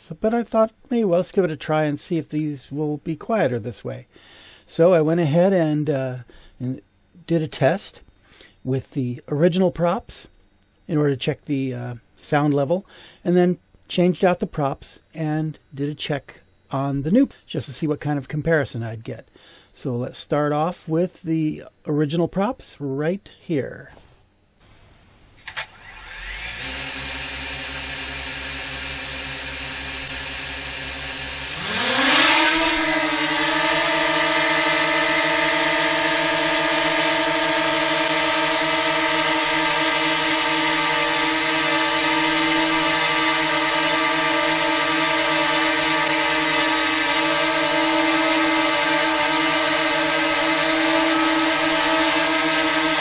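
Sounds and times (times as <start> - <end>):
drone motors whirring: 25.4 - 53.0.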